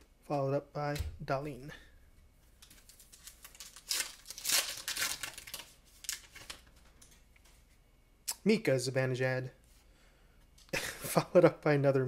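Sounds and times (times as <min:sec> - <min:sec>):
foil wrapper tearing and crinkling: 0:02.7 - 0:06.7.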